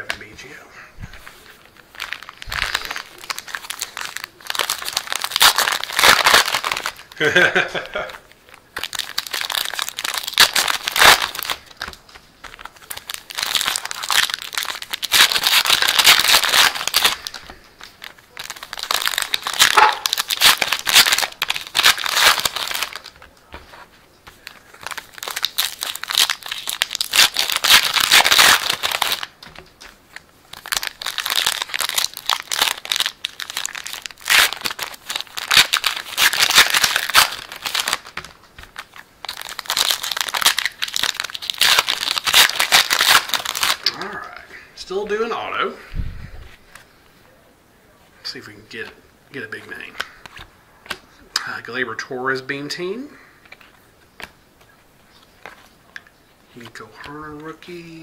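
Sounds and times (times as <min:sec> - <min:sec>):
wrappers crinkling and tearing: 0:01.2 - 0:45.1, 0:52.8 - 0:58.0.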